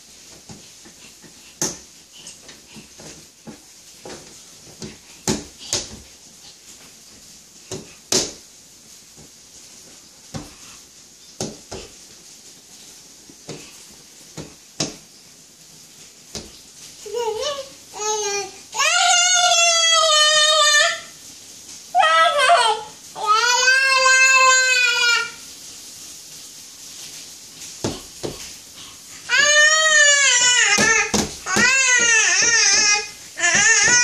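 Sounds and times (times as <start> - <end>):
hands slapping glass door: 4.8 - 6.0, 7.7 - 8.4, 14.4 - 15.0, 30.7 - 32.6.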